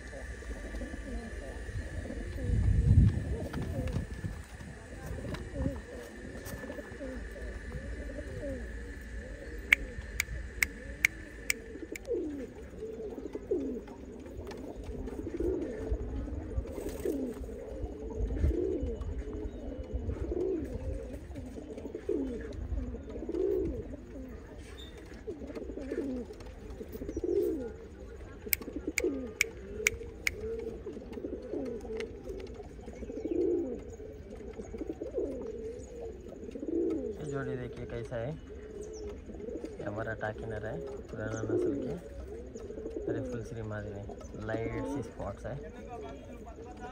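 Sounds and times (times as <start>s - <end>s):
pigeons cooing: 0.0s - 46.9s
sharp clicks: 9.6s - 12.2s.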